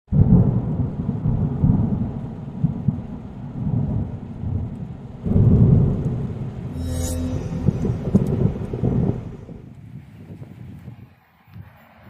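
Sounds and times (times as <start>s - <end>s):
deep rolling rumble: 2.9s - 9.7s.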